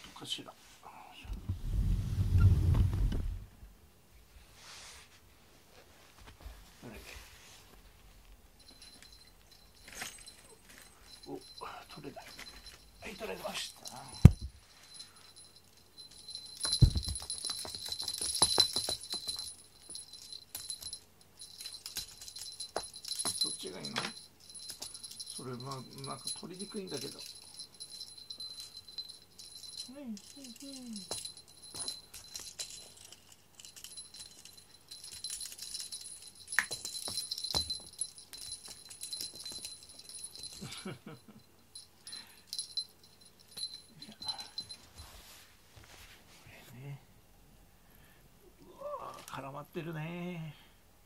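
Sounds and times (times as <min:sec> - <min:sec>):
small jingle bell ringing: 0:08.4 - 0:45.2.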